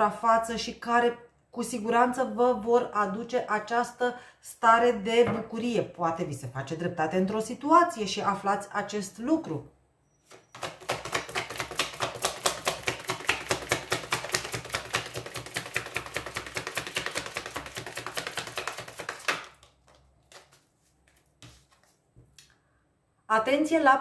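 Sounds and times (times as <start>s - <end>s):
cards being shuffled: 10.3s - 22.5s.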